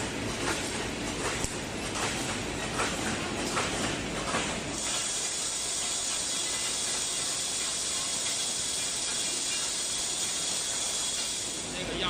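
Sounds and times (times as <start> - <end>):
welding machine stroke: 4.7 - 12.0
steady hiss: 4.8 - 12.0.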